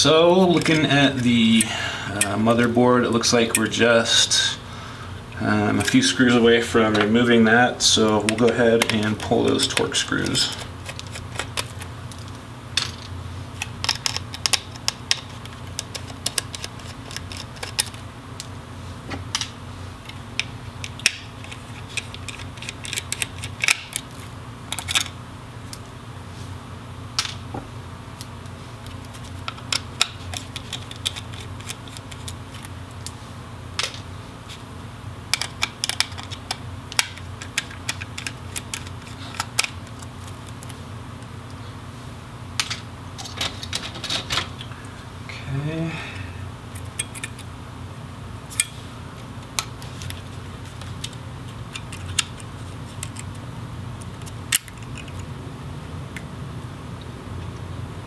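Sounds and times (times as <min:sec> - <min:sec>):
steady low hum: 0:00.0 - 0:58.0.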